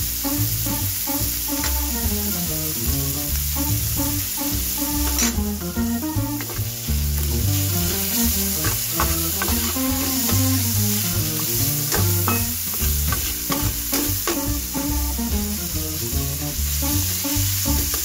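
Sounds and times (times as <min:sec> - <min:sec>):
background music with bass line: 0:00.0 - 0:18.0
food sizzling in oil: 0:00.0 - 0:18.0
metal spatula scraping wok: 0:04.8 - 0:15.0.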